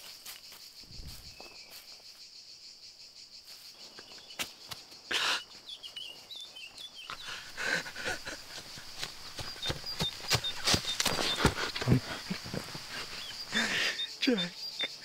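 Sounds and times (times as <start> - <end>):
crickets chirring: 0.0 - 15.0
dry leaves rustling: 7.4 - 13.7.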